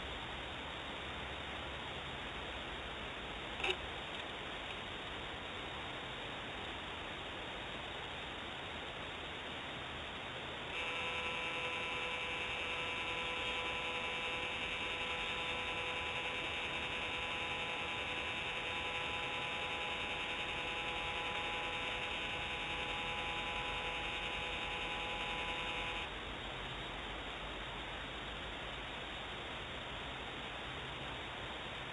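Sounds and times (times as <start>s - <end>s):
camera motor whine: 10.7s - 26.1s.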